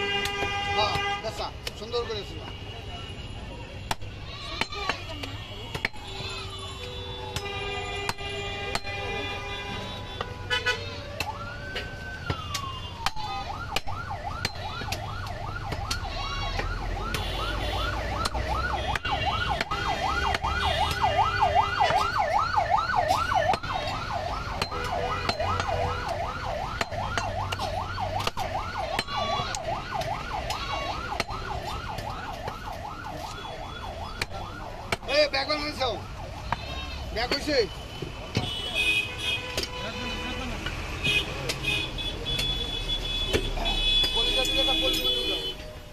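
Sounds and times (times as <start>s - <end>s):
cleaver chopping on wooden block: 3.8s - 6.3s, 7.3s - 9.1s, 11.2s - 22.3s, 23.2s - 32.6s, 34.1s - 35.1s, 41.4s - 42.7s.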